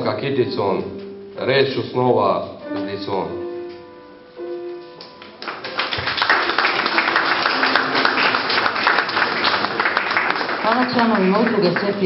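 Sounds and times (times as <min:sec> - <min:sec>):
piano notes: 0:00.0 - 0:12.0
audience applauding: 0:05.2 - 0:12.0.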